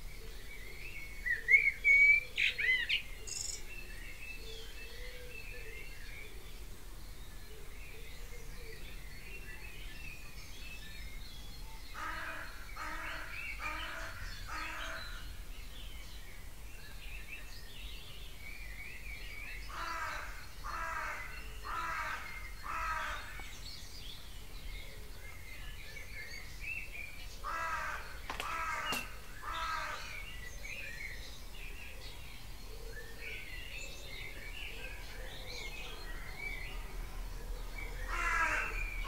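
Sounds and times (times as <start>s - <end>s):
songbirds chirping: 0.0s - 39.0s
crow cawing: 27.4s - 30.2s, 38.1s - 38.8s
sharp click: 28.3s - 29.2s.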